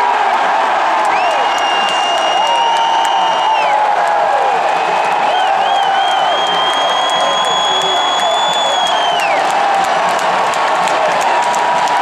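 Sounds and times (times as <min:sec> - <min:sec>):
stadium crowd cheering: 0:00.0 - 0:12.0
high-pitched whistles: 0:01.2 - 0:03.7, 0:05.3 - 0:09.3.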